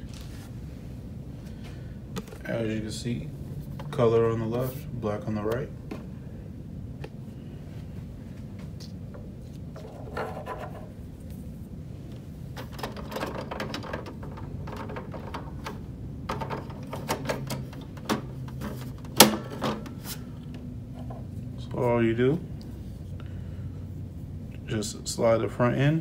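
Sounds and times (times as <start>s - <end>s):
low steady hum: 0.0s - 26.0s
plastic cartridge clicks and rattles: 12.6s - 19.8s.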